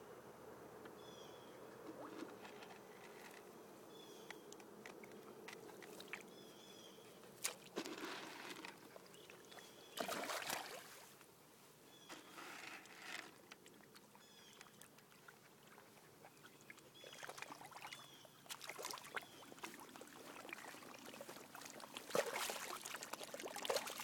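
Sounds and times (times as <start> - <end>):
dog splashing in water: 22.0 - 24.0.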